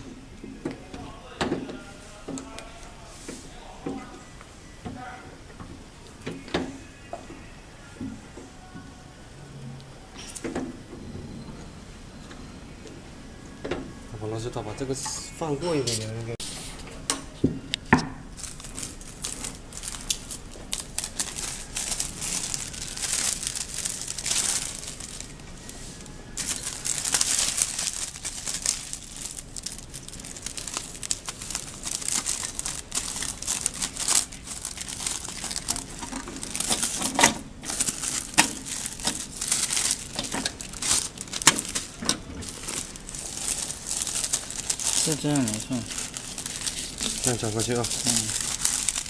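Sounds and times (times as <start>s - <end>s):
plastic film crinkling and rustling: 17.9s - 49.0s.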